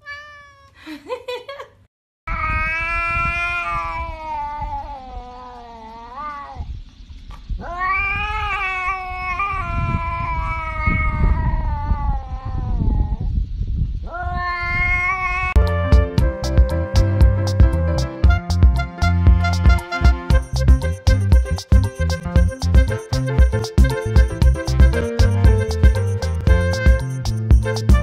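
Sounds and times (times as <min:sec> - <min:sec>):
cat yowling: 0:00.0 - 0:00.8, 0:02.3 - 0:06.8, 0:07.6 - 0:13.3, 0:14.0 - 0:15.6.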